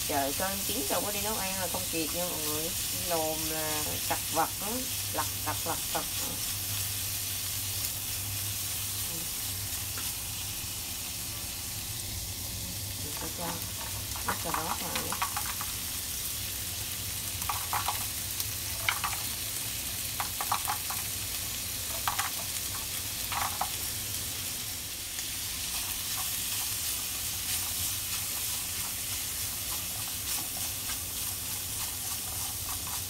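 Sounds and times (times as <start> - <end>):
meat sizzling in a wok: 0.0 - 33.0
chopsticks clicking against pan: 17.4 - 18.0, 18.8 - 19.3, 21.9 - 23.8.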